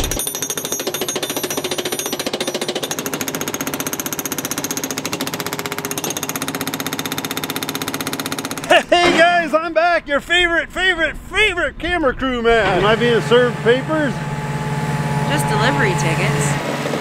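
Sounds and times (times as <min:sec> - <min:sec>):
hydraulic breaker hammering concrete: 0:00.0 - 0:09.6, 0:12.6 - 0:15.8
loader engine running: 0:12.5 - 0:17.0.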